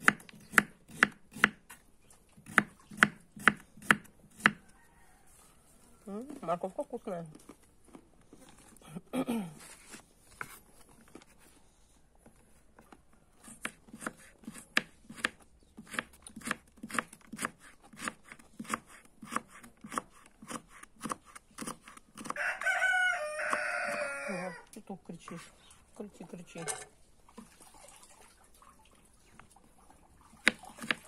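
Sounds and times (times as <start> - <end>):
knife chopping on wooden board: 0.0 - 1.7, 2.4 - 4.6, 13.4 - 22.4, 30.4 - 31.0
rooster crowing: 4.6 - 6.1, 22.3 - 24.6.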